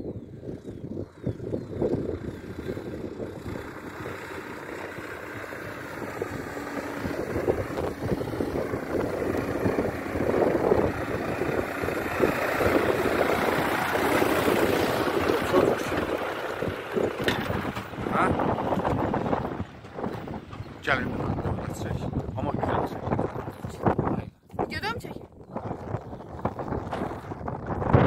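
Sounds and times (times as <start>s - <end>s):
tractor diesel engine running: 0.5s - 22.0s.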